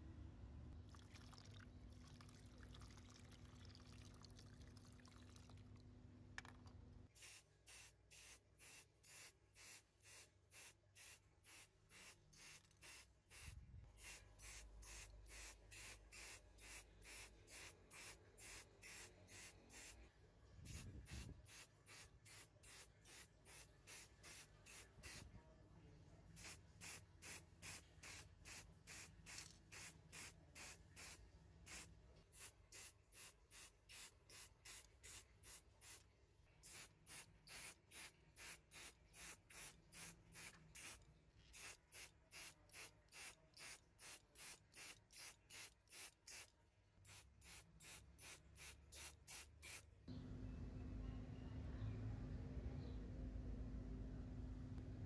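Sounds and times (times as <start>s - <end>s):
aerosol spray paint hissing: 7.2s - 20.0s, 20.7s - 25.2s, 26.4s - 36.0s, 36.6s - 46.5s, 47.1s - 49.8s.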